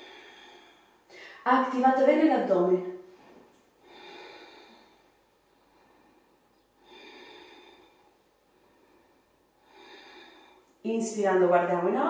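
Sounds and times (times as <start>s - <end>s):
woman breathing slowly: 0.0s - 1.4s, 3.1s - 10.8s.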